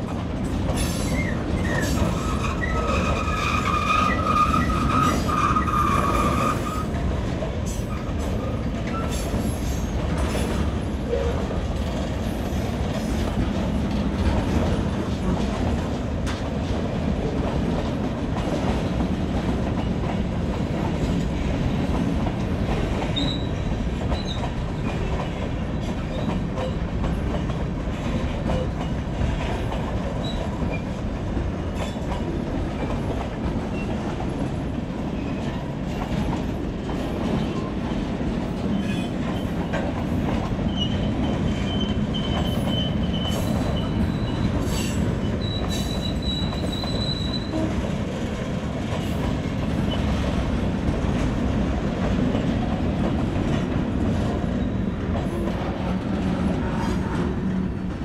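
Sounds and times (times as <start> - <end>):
freight train wheels rumbling: 0.0 - 58.0
wheel squeal: 0.9 - 6.9, 23.2 - 23.6, 40.7 - 47.8.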